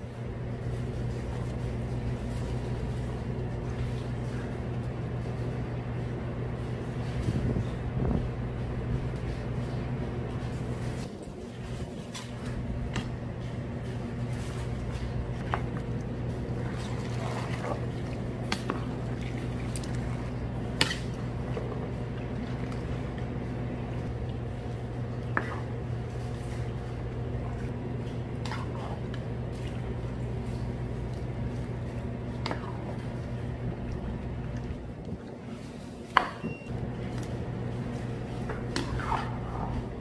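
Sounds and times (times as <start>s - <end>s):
machine hum: 0.0s - 40.0s
wet squishy sauce stirring: 10.4s - 35.9s.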